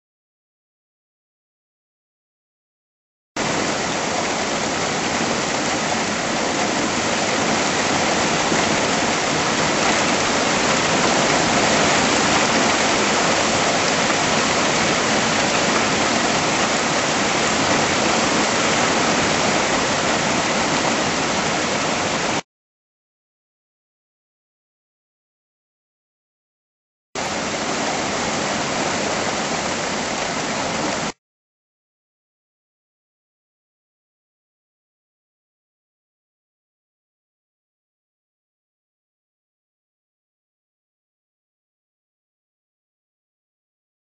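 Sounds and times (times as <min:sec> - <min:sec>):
heavy rain pouring: 0:03.4 - 0:22.4, 0:27.2 - 0:31.2.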